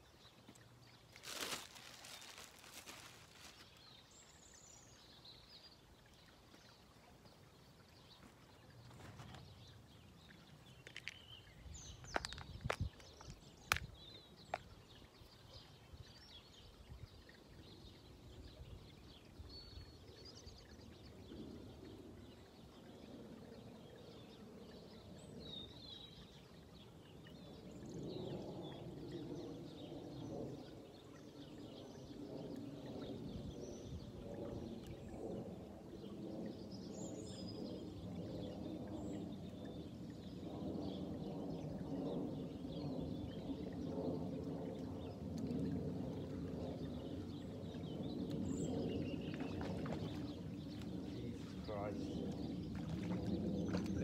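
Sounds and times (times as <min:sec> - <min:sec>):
small birds chirping: 0:00.0 - 0:21.4, 0:46.1 - 0:54.0
low droning hum: 0:37.5 - 0:54.0.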